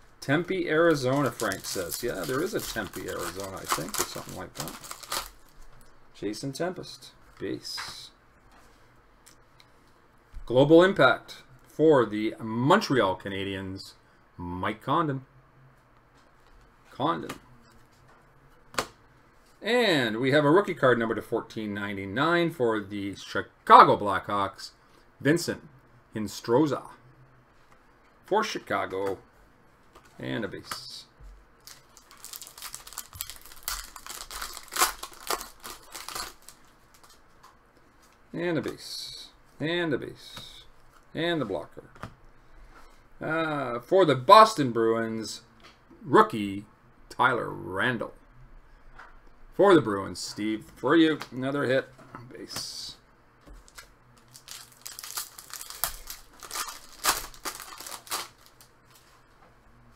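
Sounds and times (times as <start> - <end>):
foil wrapper crinkling and tearing: 0.8 - 5.6, 31.6 - 37.2, 53.6 - 58.7.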